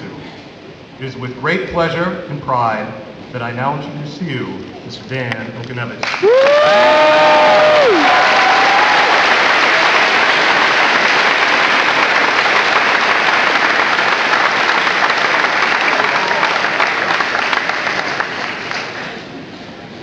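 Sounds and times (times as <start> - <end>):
audience applauding: 6.0 - 19.3.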